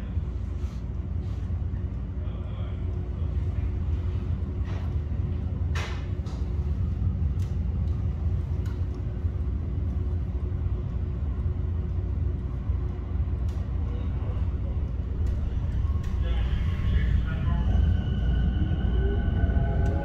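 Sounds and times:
light-rail car rumble and hum: 0:00.0 - 0:20.0.

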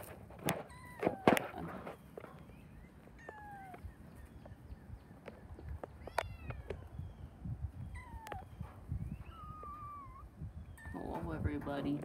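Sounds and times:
kittens mewing: 0:00.6 - 0:04.2, 0:05.8 - 0:07.0, 0:07.8 - 0:11.2.

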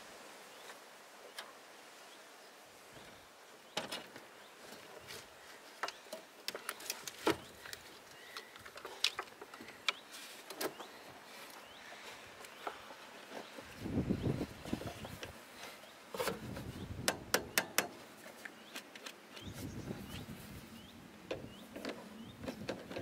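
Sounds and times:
hands and tools clicking on wiring: 0:05.8 - 0:10.8, 0:17.0 - 0:18.0.

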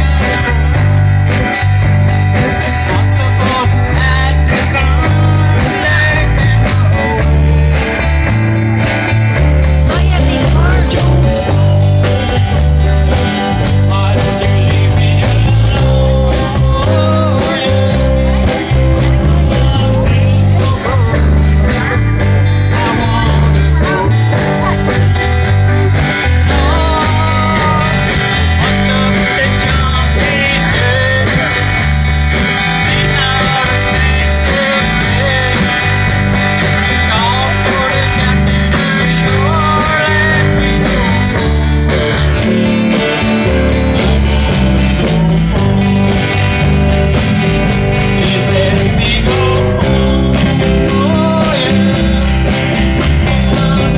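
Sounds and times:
drum kit: 0:00.0 - 0:53.9
electric bass: 0:00.0 - 0:53.9
electric lead guitar: 0:00.0 - 0:53.9
strummed acoustic rhythm guitar: 0:00.0 - 0:53.9.

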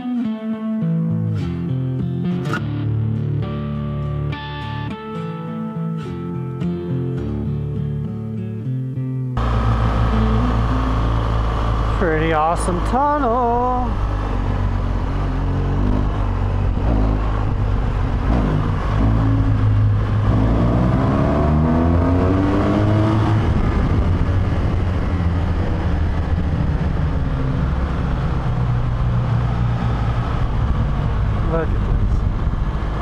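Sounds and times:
motorcycle engine running: 0:09.4 - 0:33.0
wind rush on microphone: 0:13.9 - 0:33.0.

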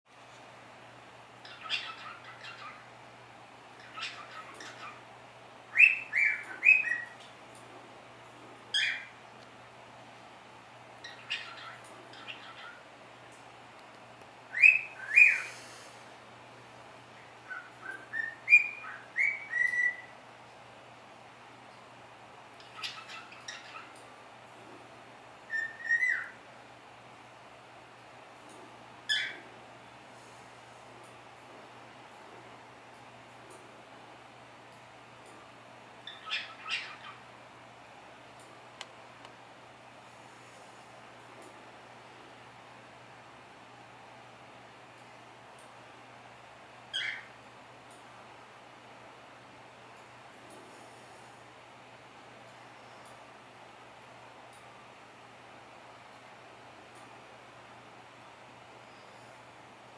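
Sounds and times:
cockatiel chattering: 0:01.4 - 0:02.8, 0:03.8 - 0:05.0, 0:05.8 - 0:07.2, 0:08.7 - 0:09.1, 0:11.0 - 0:12.8, 0:17.5 - 0:20.1, 0:22.6 - 0:24.0, 0:25.5 - 0:26.4, 0:29.1 - 0:29.4, 0:36.0 - 0:37.2, 0:46.9 - 0:47.3
cockatiel whistling: 0:05.8 - 0:07.2, 0:14.5 - 0:15.5, 0:17.5 - 0:20.1, 0:25.5 - 0:26.4.

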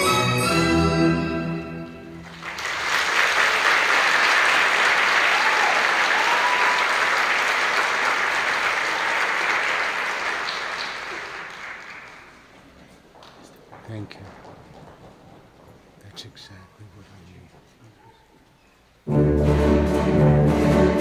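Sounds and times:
orchestral music: 0:00.0 - 0:02.6, 0:19.0 - 0:21.0
audience applauding: 0:02.2 - 0:14.2.

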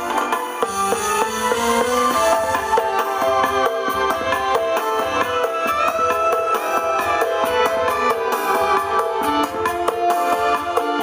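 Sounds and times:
live band music: 0:00.0 - 0:11.0.

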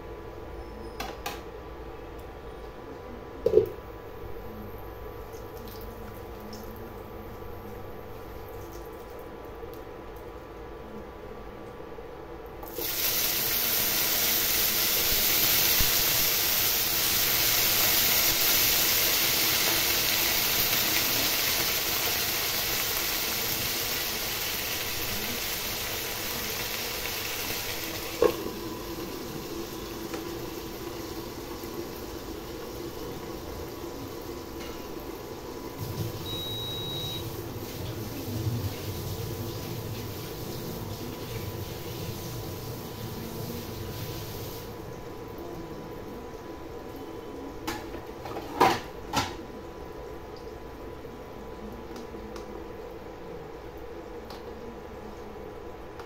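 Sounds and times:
okra sizzling in hot oil: 0:12.6 - 0:44.9.

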